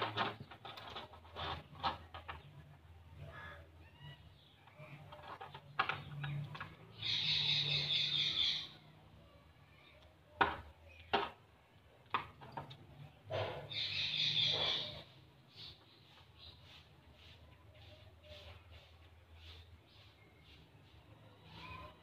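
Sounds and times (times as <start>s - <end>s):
clicks and taps of handling packaging: 10.4s - 11.4s, 12.0s - 12.9s.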